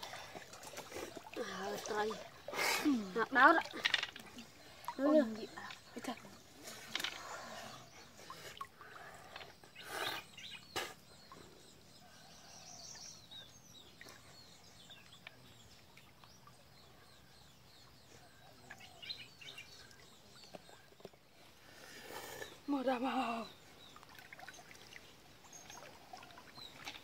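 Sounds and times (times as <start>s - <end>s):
faint bird chirping: 0.0s - 27.0s.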